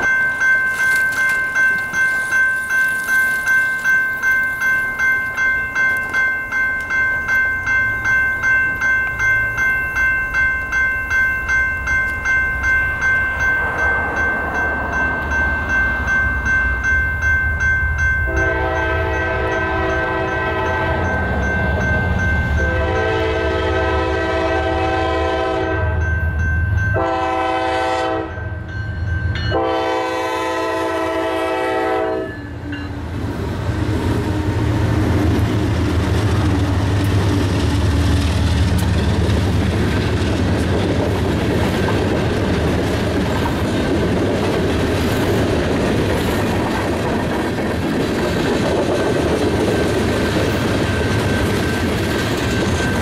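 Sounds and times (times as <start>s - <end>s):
crossing warning bell ringing: 0.0s - 53.0s
freight train rumble: 0.0s - 53.0s
locomotive air horn blasts: 18.3s - 21.1s, 22.6s - 26.0s, 27.0s - 28.4s, 29.5s - 32.4s.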